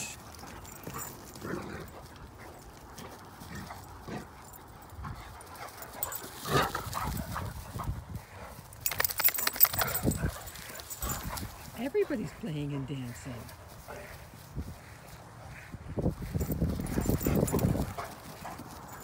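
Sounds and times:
paws thudding and scuffling: 0:00.2 - 0:19.0.

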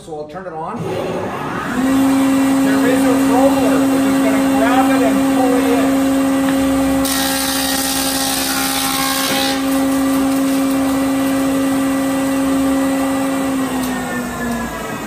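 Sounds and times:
planer motor hum: 0:00.8 - 0:15.0
planer knives cutting board: 0:06.4 - 0:11.5.

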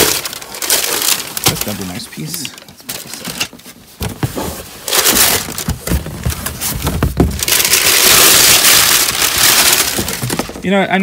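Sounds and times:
packing paper rustling: 0:00.0 - 0:10.8
dull knocks of cardboard: 0:05.4 - 0:07.5.

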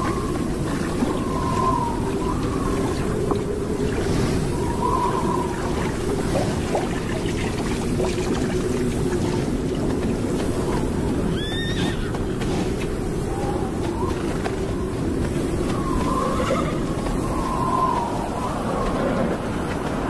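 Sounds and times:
desert wind: 0:00.0 - 0:20.0
horse whinnying: 0:11.3 - 0:12.3.

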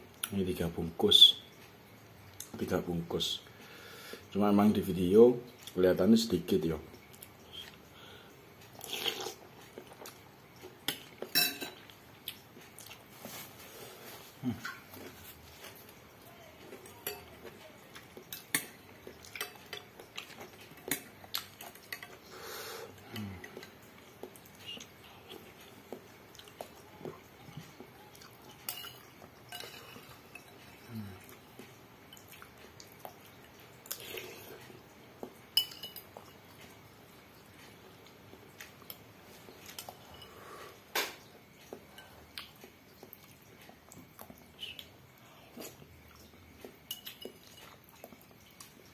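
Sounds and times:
spoon clinking against glass bowl: 0:11.3 - 0:11.8, 0:17.0 - 0:17.4, 0:28.6 - 0:30.9, 0:35.6 - 0:36.3, 0:46.9 - 0:47.8.

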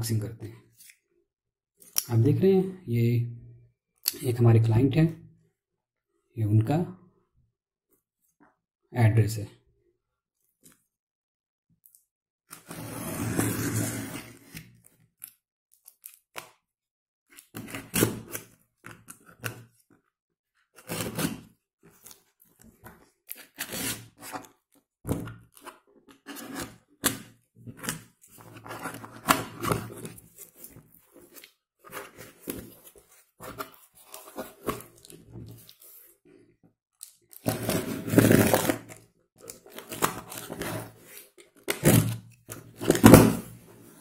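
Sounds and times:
cardboard scraping tearing and rustling: 0:12.6 - 0:14.6, 0:20.8 - 0:21.5, 0:37.4 - 0:39.0, 0:39.6 - 0:43.6.

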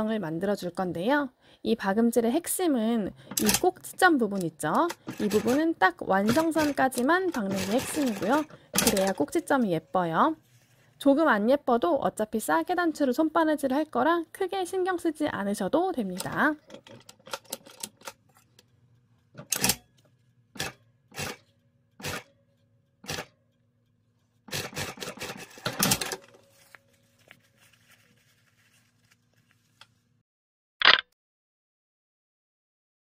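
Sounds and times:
sewing machine motor humming: 0:06.3 - 0:09.1
fabric being handled: 0:26.3 - 0:30.2.

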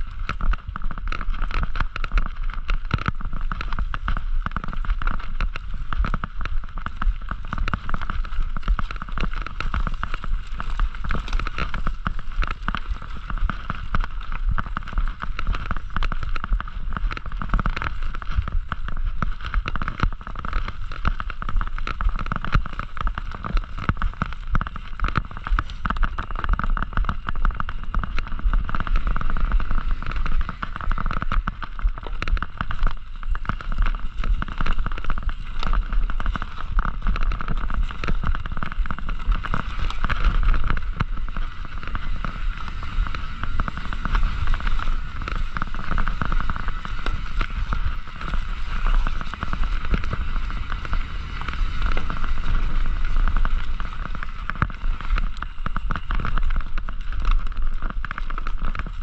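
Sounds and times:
bike rattling and knocking: 0:00.0 - 0:59.0
low rumble of tyres: 0:00.0 - 0:59.0.

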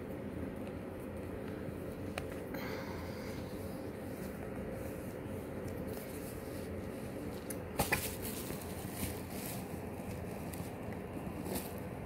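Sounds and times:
paper rustling: 0:04.2 - 0:11.8.

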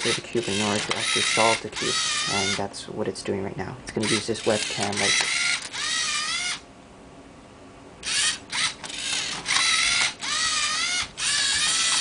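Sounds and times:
servo motors whining: 0:00.0 - 0:02.6, 0:04.0 - 0:06.6, 0:08.0 - 0:12.0.

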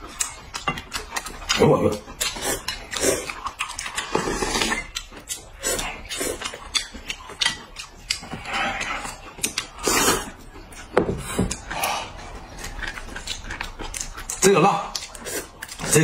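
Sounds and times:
people slurping noodles: 0:01.5 - 0:06.6, 0:08.2 - 0:10.5
chopsticks clicking against bowls: 0:06.1 - 0:09.8, 0:12.6 - 0:15.9.

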